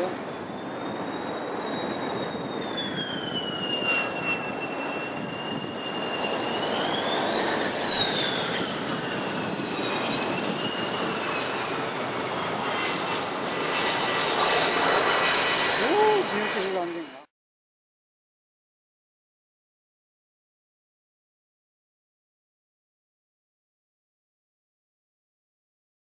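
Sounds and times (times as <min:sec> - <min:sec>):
jet engine whistle: 0:00.0 - 0:17.3
jet rushing roar: 0:00.0 - 0:17.3.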